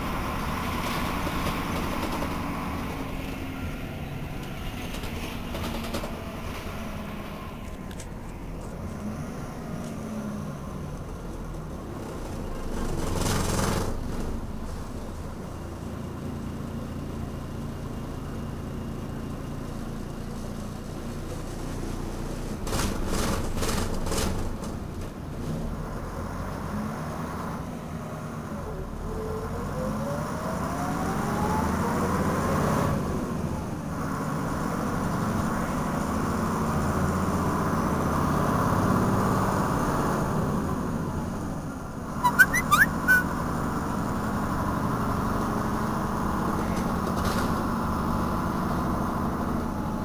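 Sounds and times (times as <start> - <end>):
bus diesel engine running: 0.0 - 25.3.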